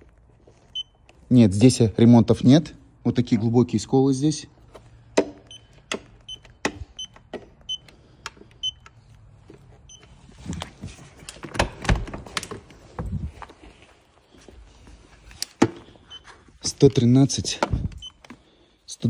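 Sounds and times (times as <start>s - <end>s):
footsteps on concrete floor: 12.2s - 16.5s.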